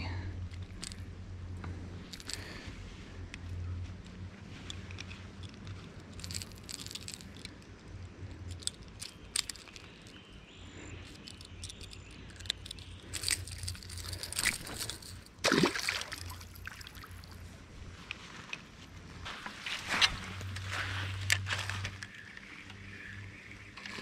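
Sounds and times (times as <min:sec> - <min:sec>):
small handling clicks: 0:00.4 - 0:02.6, 0:03.2 - 0:15.4
creek water splashing: 0:14.9 - 0:17.4.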